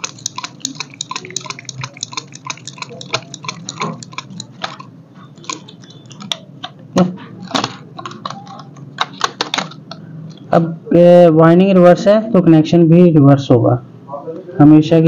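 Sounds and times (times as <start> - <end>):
wire winding clicks: 0.0 - 6.8.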